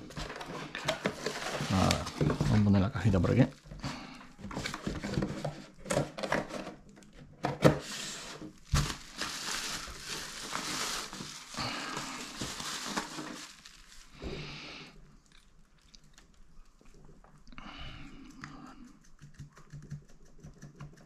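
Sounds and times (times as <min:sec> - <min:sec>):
bubble wrap crinkling: 0:00.0 - 0:05.9, 0:07.8 - 0:17.4.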